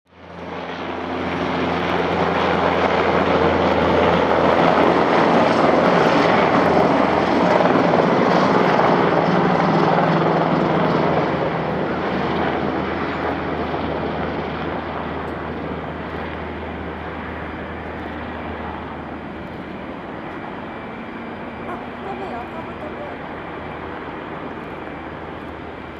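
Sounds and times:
jet engines roaring: 14.6s - 25.9s.

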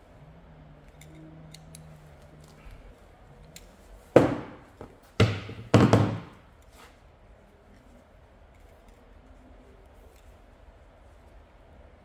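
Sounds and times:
hand tools knocking on wooden bench: 4.2s - 6.4s.

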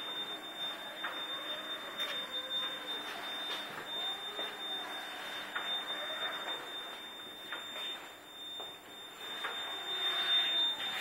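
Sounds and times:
high-pitched electronic whine: 0.0s - 11.0s
footsteps on hard floor: 2.0s - 4.7s.

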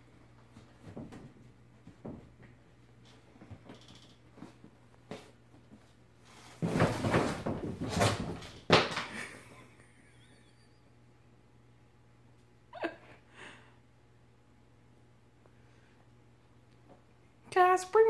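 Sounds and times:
faint steady hum: 0.0s - 18.0s.

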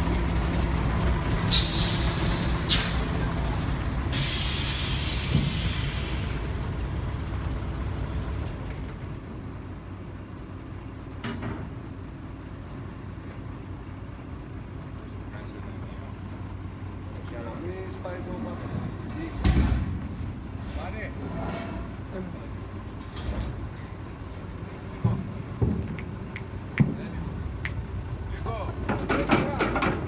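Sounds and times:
air hissing: 1.5s - 6.6s.

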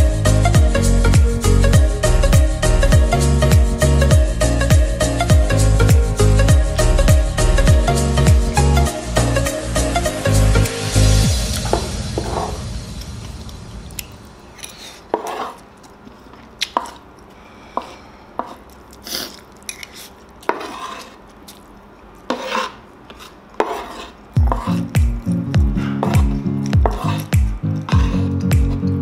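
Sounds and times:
electronic music: 0.0s - 14.0s, 24.4s - 29.0s
spoon and chopsticks scraping plate: 14.5s - 15.7s, 17.8s - 21.2s, 22.2s - 24.9s, 26.8s - 28.4s.

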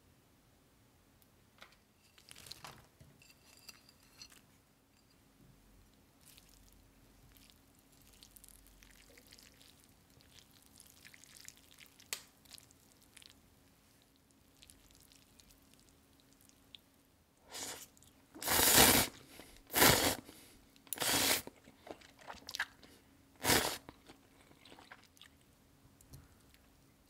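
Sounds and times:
soft clicks and wet ticks: 5.9s - 13.4s, 14.0s - 16.9s, 24.2s - 27.0s.

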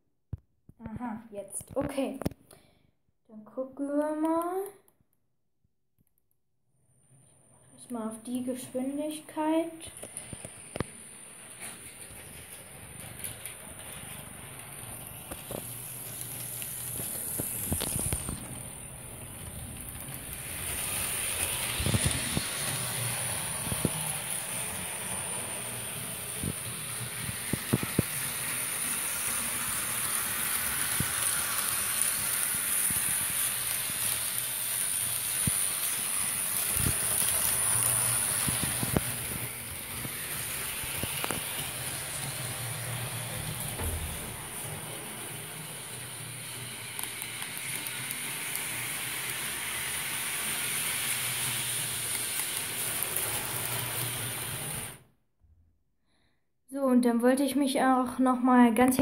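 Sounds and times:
model locomotive whirring on track: 10.0s - 55.0s.

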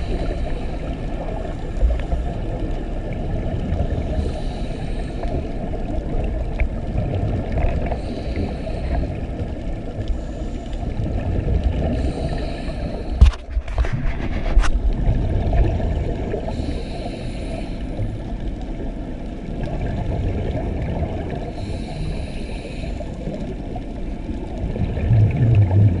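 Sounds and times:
muffled underwater rumble: 0.0s - 26.0s.

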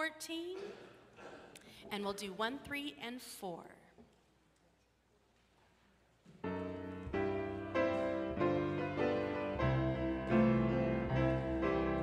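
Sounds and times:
piano playing hymn chords: 6.4s - 12.0s.

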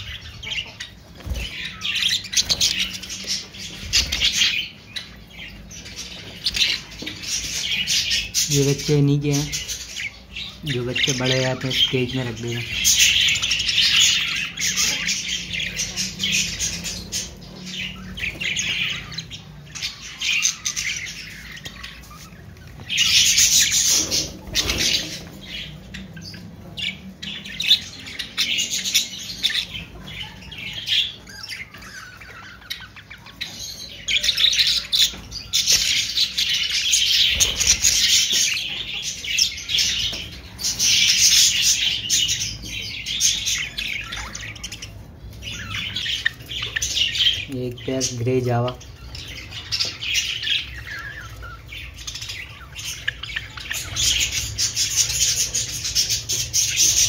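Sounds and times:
budgerigars chattering and chirping: 0.0s - 57.0s.

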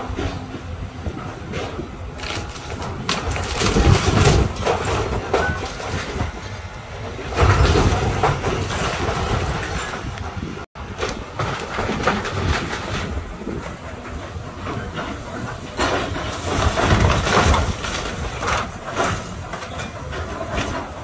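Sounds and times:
excavator engine: 0.0s - 21.0s
timber cracking and splintering: 2.2s - 6.2s, 16.4s - 19.2s
debris crashing down: 2.2s - 6.4s, 15.7s - 21.0s.

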